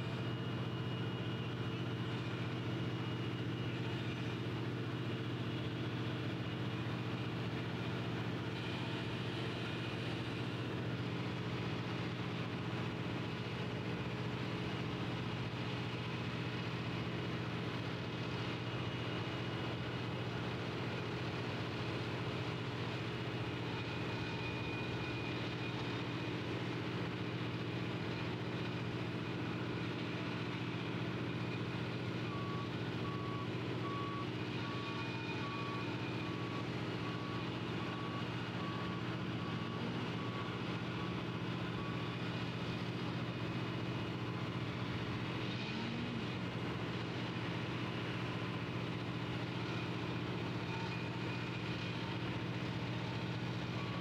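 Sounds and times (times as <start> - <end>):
diesel engine running: 0.0 - 54.0
reversing alarm beeping: 29.0 - 54.0.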